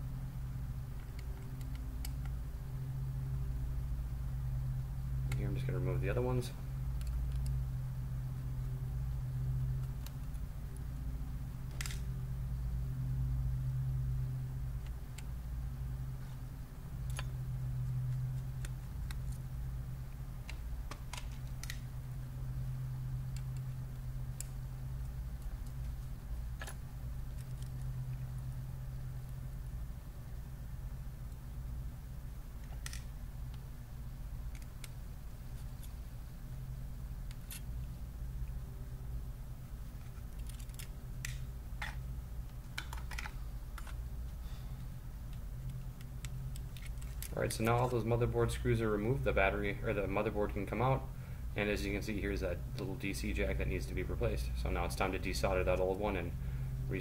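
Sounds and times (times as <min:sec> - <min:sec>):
steady low hum: 0:00.0 - 0:57.0.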